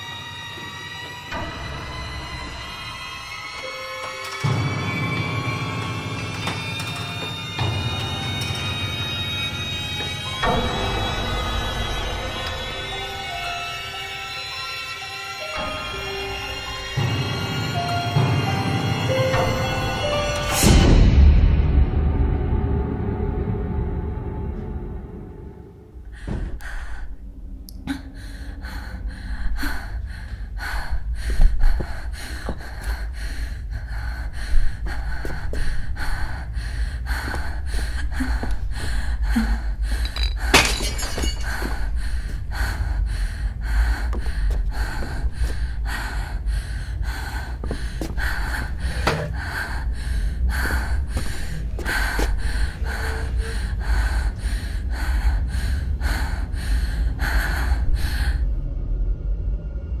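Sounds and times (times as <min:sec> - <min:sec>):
steady low rumble: 0:21.0 - 1:00.0.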